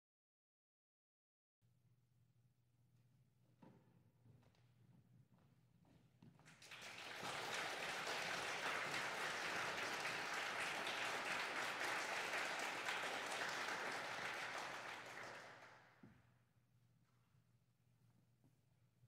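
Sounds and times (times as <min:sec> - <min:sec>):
audience applauding: 0:06.5 - 0:15.9.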